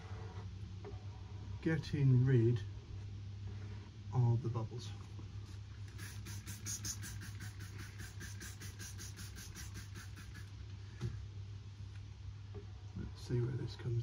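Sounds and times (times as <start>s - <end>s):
plastic scraper rubbing on vinyl: 6.0s - 10.5s.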